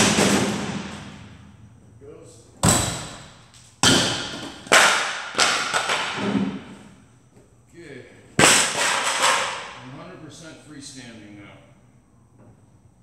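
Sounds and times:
hammer banging on wood: 2.6 - 6.6.

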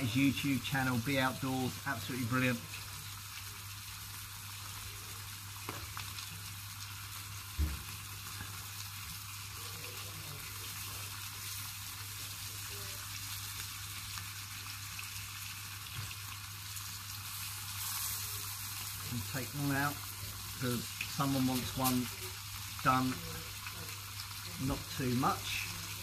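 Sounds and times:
steaks sizzling in a pan: 0.0 - 26.0
short knock: 7.6 - 7.8.

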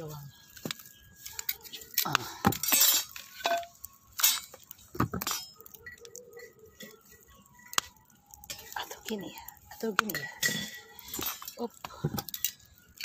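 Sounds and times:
metal scraping: 0.6 - 7.2
metal grill rack clattering: 1.2 - 5.7, 10.0 - 11.6.

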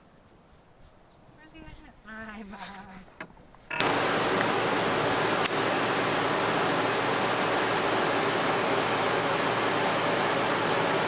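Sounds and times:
loud rushing hiss: 3.8 - 11.0.

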